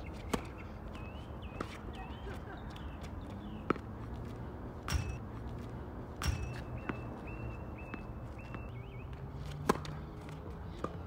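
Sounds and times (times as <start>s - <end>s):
tennis ball bouncing on hard court: 4.9s - 5.2s, 6.2s - 8.7s.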